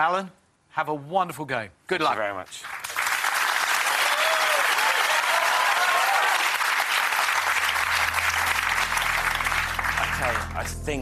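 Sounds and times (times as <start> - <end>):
audience applauding: 2.6 - 10.8
low music drone: 7.4 - 11.0.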